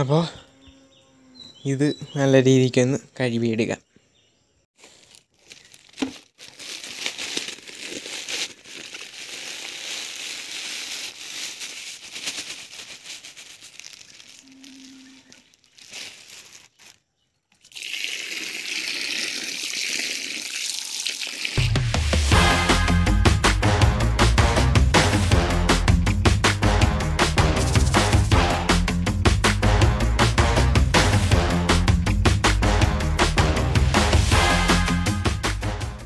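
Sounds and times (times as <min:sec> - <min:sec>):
plastic bag crinkling: 0:04.8 - 0:17.9
tap water running onto sand: 0:17.6 - 0:21.8.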